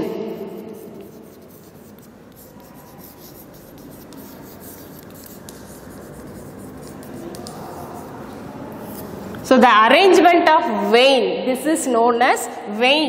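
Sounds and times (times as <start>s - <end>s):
chalk scratching on chalkboard: 0.0s - 9.2s.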